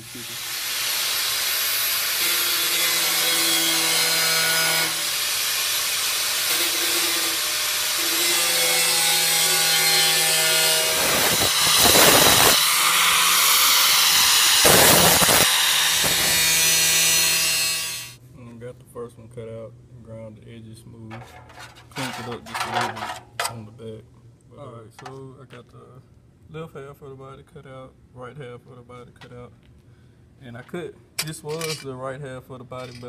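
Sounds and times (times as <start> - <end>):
angle grinder cutting metal: 0.0 - 18.2.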